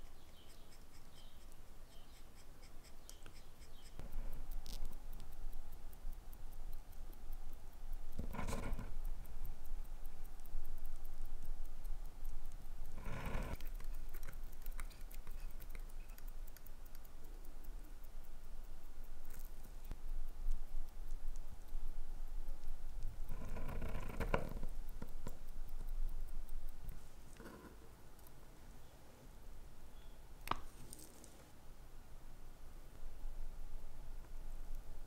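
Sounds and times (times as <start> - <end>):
watch ticking quickly: 0.0 - 27.0.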